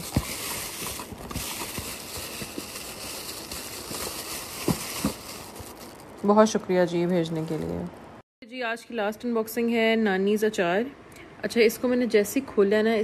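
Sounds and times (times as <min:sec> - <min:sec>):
plastic packaging crinkling: 0:00.0 - 0:07.9.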